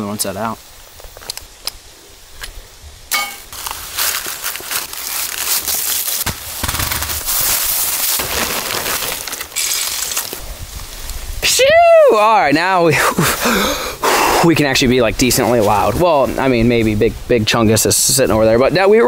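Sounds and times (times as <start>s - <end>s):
chain and dry leaves rustling: 3.1s - 11.1s
kibble scooped from plastic bag: 3.5s - 6.2s.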